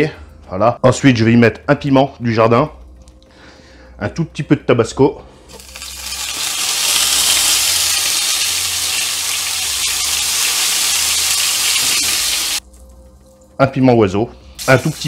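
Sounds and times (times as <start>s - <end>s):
oil sizzling in frying pan: 5.5s - 12.6s, 14.6s - 15.0s.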